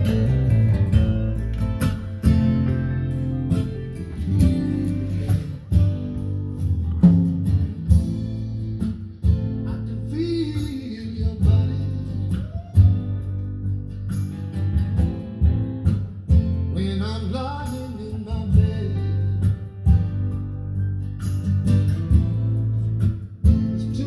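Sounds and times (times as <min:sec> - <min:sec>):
guitar song with singing over speakers: 0:00.0 - 0:24.0.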